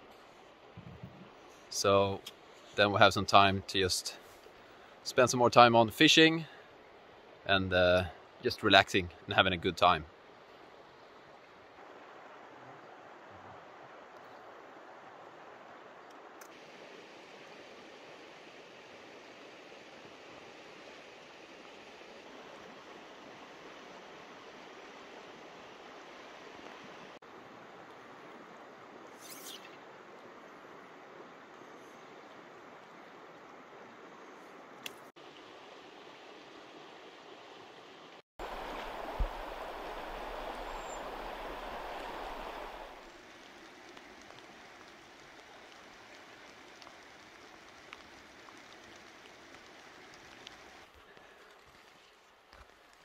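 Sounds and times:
flowing river water: 0.0 - 53.0
river water rushing: 35.2 - 51.0.

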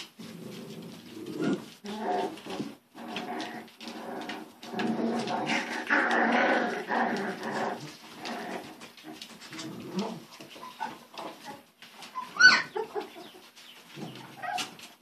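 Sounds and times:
puppies whining and squealing: 9.5 - 14.9.

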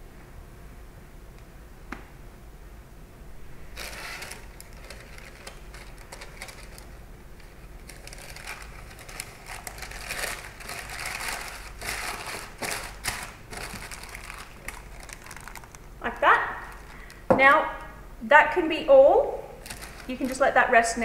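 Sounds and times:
rustling and crinkling handling noise: 3.7 - 17.3, 19.6 - 21.0.

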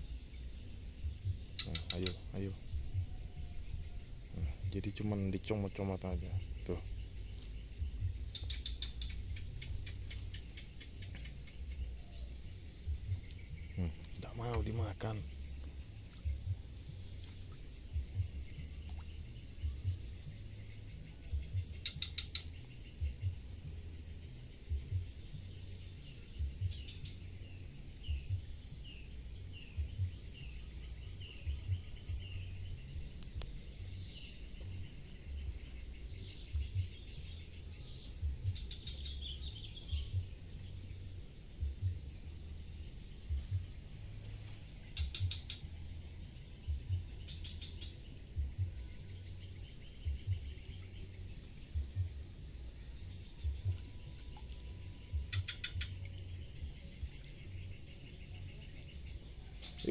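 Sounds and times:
insects droning: 0.0 - 59.9
low thumps: 1.0 - 20.6, 21.3 - 21.8, 36.5 - 37.3, 38.2 - 39.1, 41.5 - 46.1, 46.7 - 47.2, 50.0 - 50.6, 51.7 - 52.3, 53.3 - 54.1, 55.1 - 56.0.

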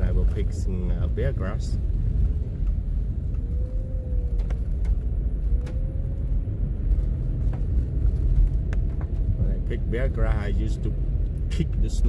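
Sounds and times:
van engine and tyres rumbling: 0.0 - 12.0
light ticks: 11.2 - 11.6.

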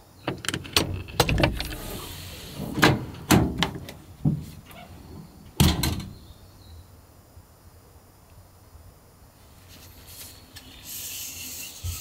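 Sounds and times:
knocks and rustling inside truck: 0.2 - 6.2
window sliding hiss: 1.0 - 5.0, 9.5 - 12.0.

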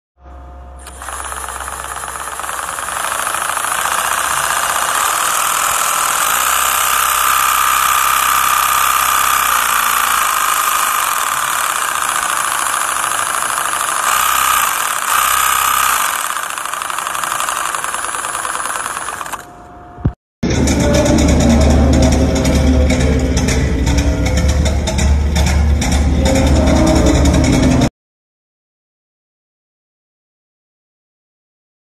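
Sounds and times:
engine turning over: 0.8 - 19.5.

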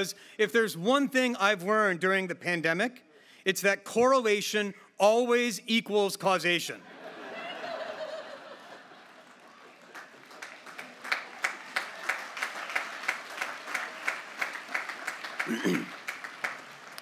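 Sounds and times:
audience laughing: 6.8 - 9.4
crowd applause: 7.2 - 17.0.

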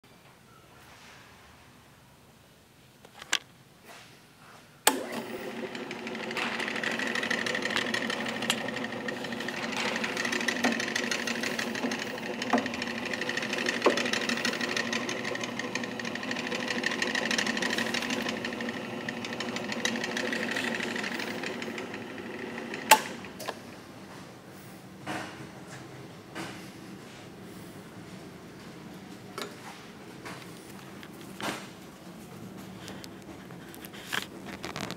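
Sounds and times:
drill press switch click: 4.9 - 5.8
drill press motor humming: 4.9 - 23.8.

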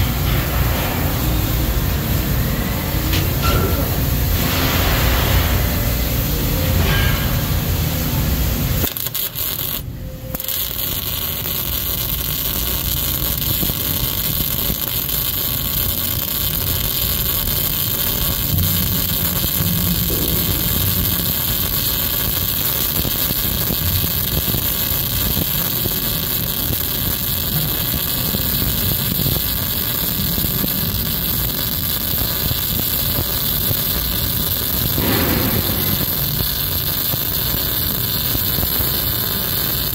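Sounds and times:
shop noise: 0.0 - 11.9
welding arc: 0.0 - 39.9.

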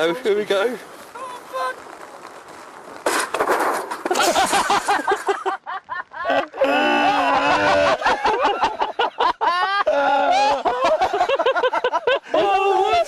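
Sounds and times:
men laughing: 4.1 - 13.0.

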